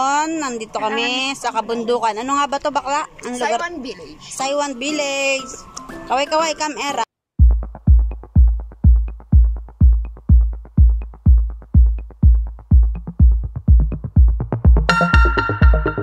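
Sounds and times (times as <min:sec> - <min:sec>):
electronic dance music: 0:07.4 - 0:16.0.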